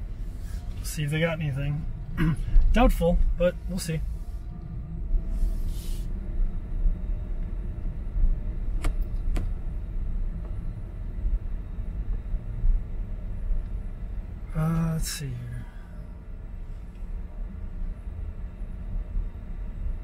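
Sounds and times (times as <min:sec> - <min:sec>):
brief hiss: 0:05.3 - 0:06.1.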